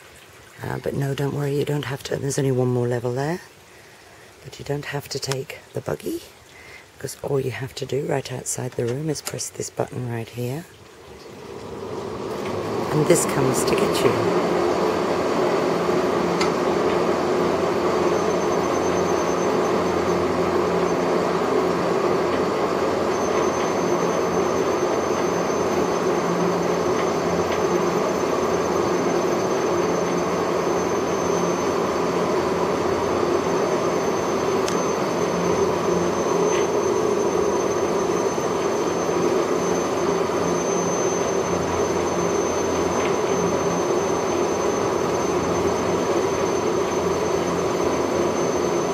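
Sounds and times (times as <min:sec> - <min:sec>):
faint high whine: 0:00.0 - 0:48.9
lift car rumbling on rail track: 0:11.0 - 0:48.9.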